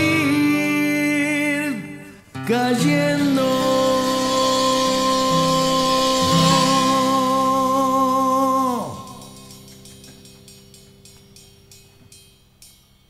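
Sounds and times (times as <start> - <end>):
band holding final note: 3.9 - 8.5.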